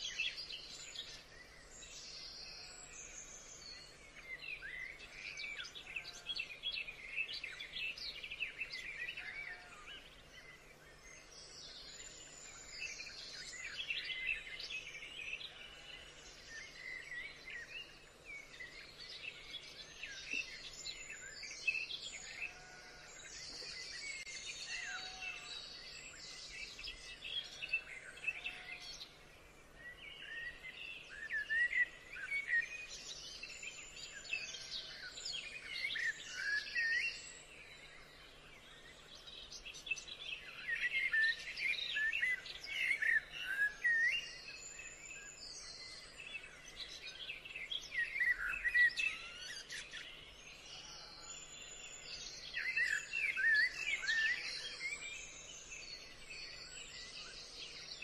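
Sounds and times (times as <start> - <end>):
birds chirping and whistling: 39.8 - 58.0.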